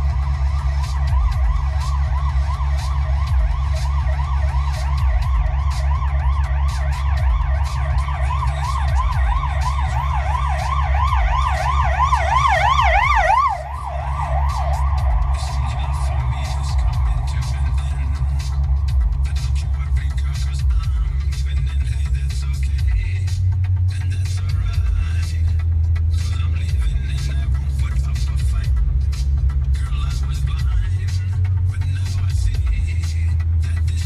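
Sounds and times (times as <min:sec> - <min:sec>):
emergency siren yelping: 0:00.0 - 0:18.9
low rumble: 0:00.0 - 0:34.0.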